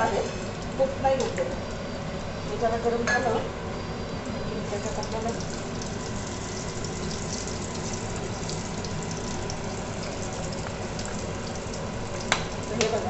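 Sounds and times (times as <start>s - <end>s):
oil sizzling with spices: 4.6s - 13.0s.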